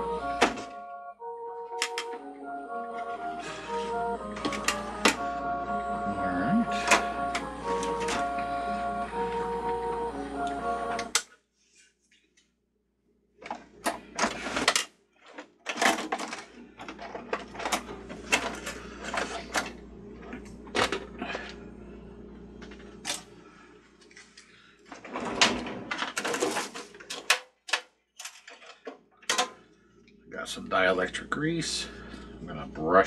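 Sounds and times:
steady low hum: 1.9s - 11.2s, 16.3s - 25.8s, 29.4s - 33.0s
plastic parts clicking and rattling: 13.4s - 19.7s, 24.0s - 29.6s.

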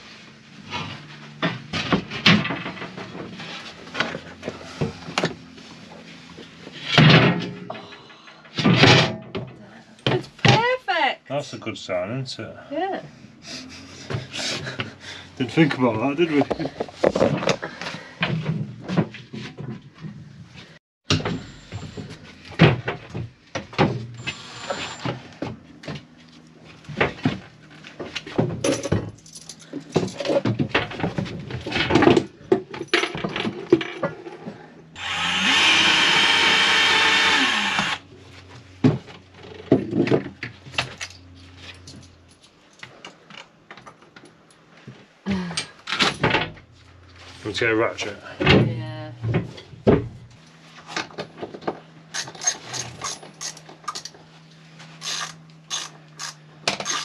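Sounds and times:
tools and timber clattering: 0.6s - 10.7s, 13.9s - 45.0s, 48.0s - 57.0s
cordless drill motor spinning: 35.0s - 38.0s, 55.0s - 57.0s.

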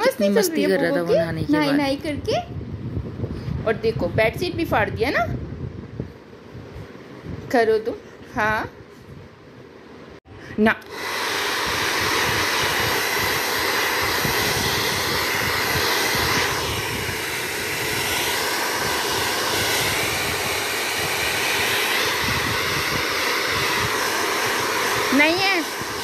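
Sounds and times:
blow dryer blowing: 10.6s - 26.0s.

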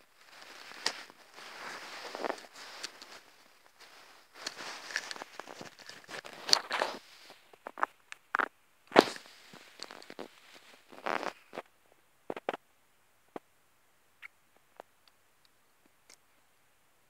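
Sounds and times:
hamster grooming rustles: 0.1s - 7.8s.

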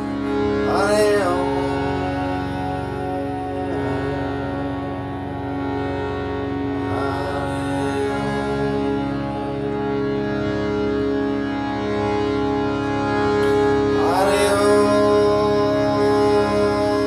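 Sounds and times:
harmonium droning chords: 0.0s - 17.0s
person singing a gliding note: 14.0s - 17.0s.

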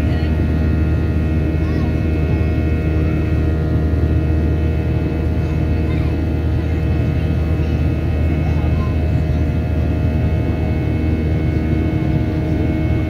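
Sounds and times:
high whining fan tones: 0.0s - 13.0s
jet engine drone in cabin: 0.0s - 13.0s.

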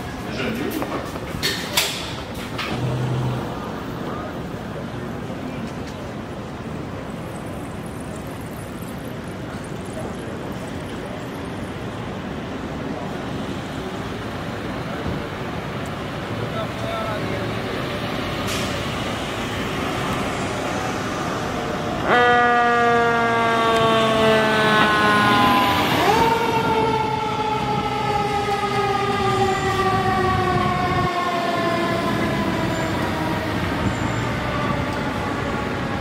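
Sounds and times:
fire truck siren wailing: 16.2s - 36.0s.

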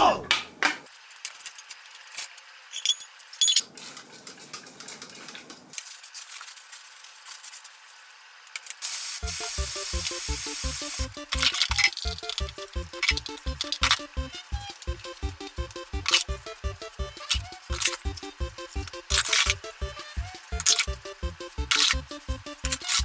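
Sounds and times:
background music with beat: 9.2s - 23.0s.

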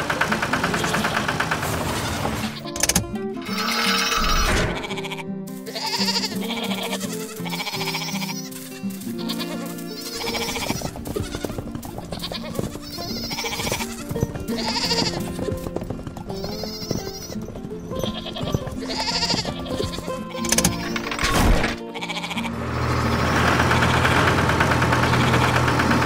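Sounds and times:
background music: 0.0s - 26.0s
sheep bleating: 3.4s - 15.4s, 16.3s - 21.2s, 21.8s - 23.9s, 24.9s - 26.0s.

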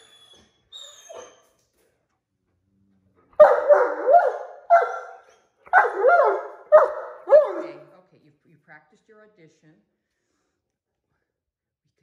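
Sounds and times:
dog howling barks: 3.4s - 7.8s.

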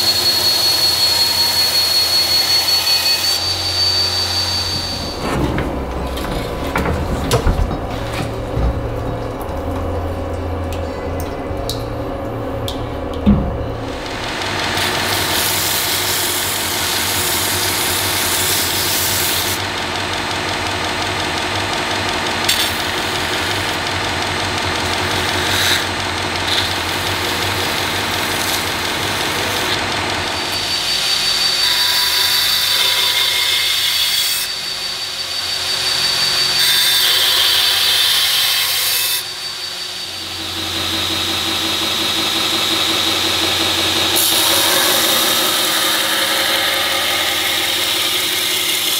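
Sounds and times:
belt grinder grinding blade: 13.8s - 48.9s.

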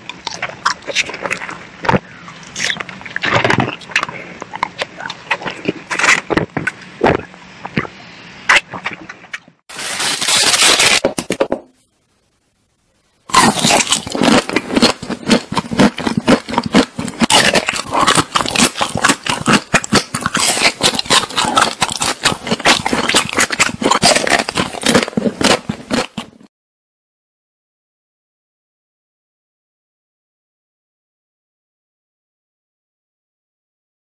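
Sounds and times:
wrapper crackling: 9.7s - 11.5s
crunching of ice cream bars bitten: 13.3s - 26.5s.

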